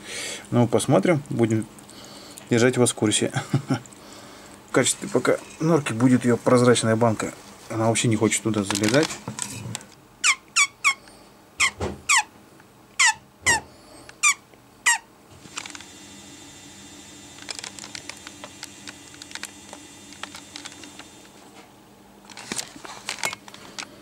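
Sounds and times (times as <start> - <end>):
rat squeaking: 10.2 - 11.0, 11.6 - 12.3, 13.0 - 15.1.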